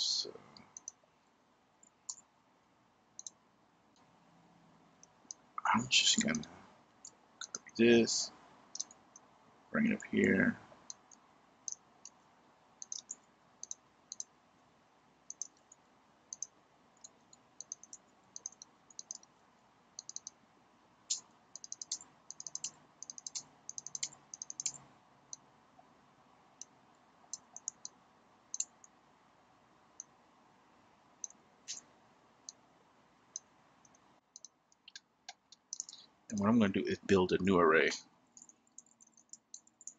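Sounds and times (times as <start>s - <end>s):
computer keyboard keystrokes: 12.8s - 14.3s, 15.3s - 15.7s, 16.3s - 19.3s, 20.0s - 20.3s, 21.1s - 24.8s, 27.3s - 27.9s.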